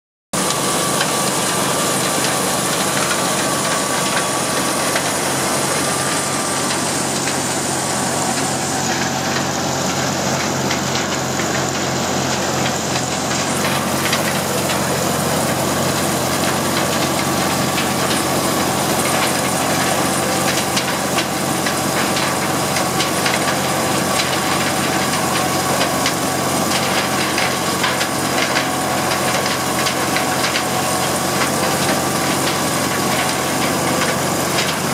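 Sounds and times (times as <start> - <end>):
corn sheller running: 0.4 - 34.9.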